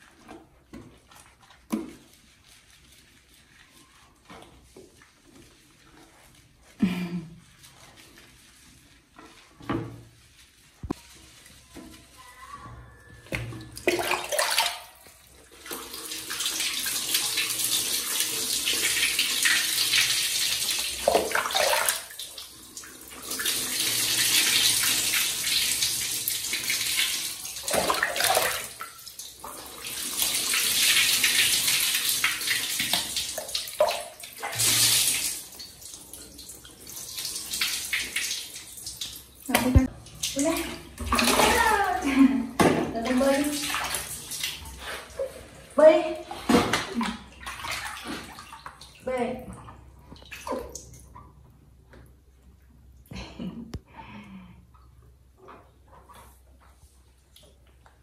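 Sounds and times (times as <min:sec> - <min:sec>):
water splashing: 0:13.3 - 0:17.5, 0:18.6 - 0:25.6, 0:26.2 - 0:51.3.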